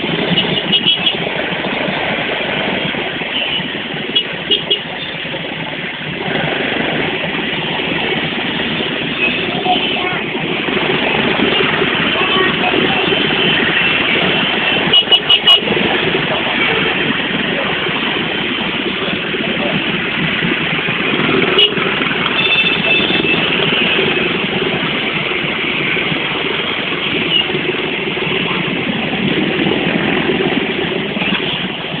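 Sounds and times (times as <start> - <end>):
scooter engines idling: 4.0 - 32.0
horn beeps: 21.5 - 24.1.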